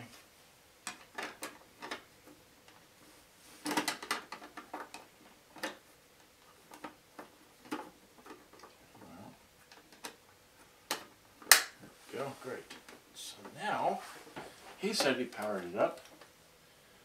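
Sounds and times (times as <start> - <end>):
plastic clicks and knocks: 10.9 - 11.8.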